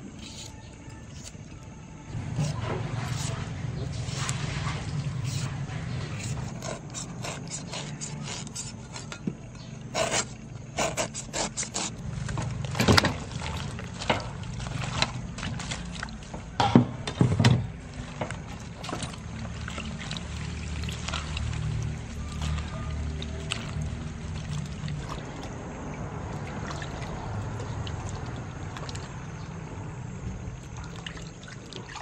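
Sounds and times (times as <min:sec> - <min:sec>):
steady low hum: 0:00.0 - 0:32.0
knife scraping cucumber peel: 0:00.2 - 0:01.4, 0:02.3 - 0:09.3, 0:09.9 - 0:12.0
vegetables swished in water: 0:02.1 - 0:07.2, 0:17.9 - 0:29.3.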